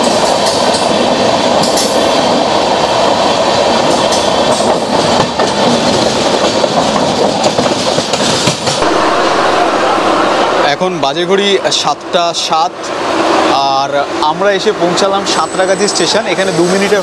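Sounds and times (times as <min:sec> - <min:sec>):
train wheels rushing on rails: 0:00.0 - 0:17.0
wheels clicking over rail joints: 0:03.7 - 0:08.8.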